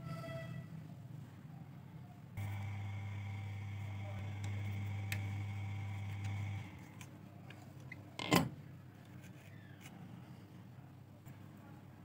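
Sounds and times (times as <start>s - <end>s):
steady hum: 2.4s - 7.0s.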